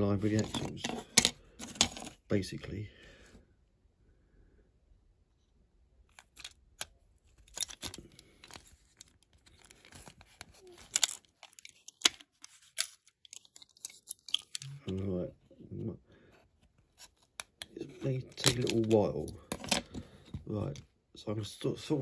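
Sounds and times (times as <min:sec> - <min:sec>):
toy car parts scraping: 0:00.2 - 0:02.2, 0:06.1 - 0:14.8.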